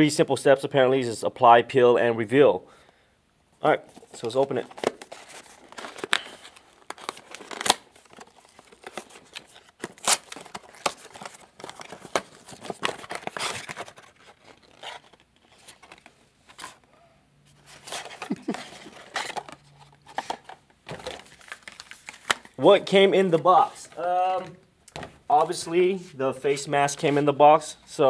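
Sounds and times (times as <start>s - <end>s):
cardboard rustling and crinkling: 3.9s - 16.8s, 17.5s - 25.7s.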